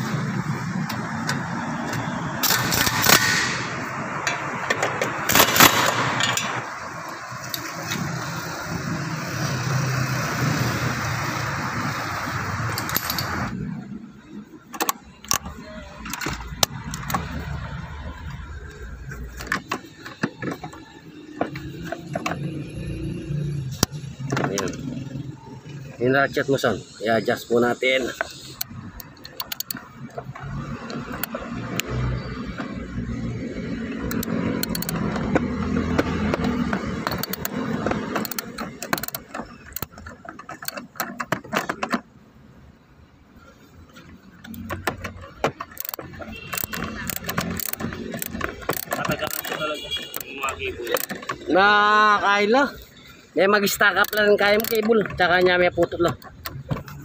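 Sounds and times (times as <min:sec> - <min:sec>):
ratchet wrench clicking: 0:12.6 - 0:13.6, 0:27.3 - 0:41.2, 0:44.4 - 0:51.6, 0:53.6 - 0:57.0
socket tool and metal clinks: 0:12.7 - 0:13.6, 0:34.0 - 0:42.0, 0:44.4 - 0:51.6.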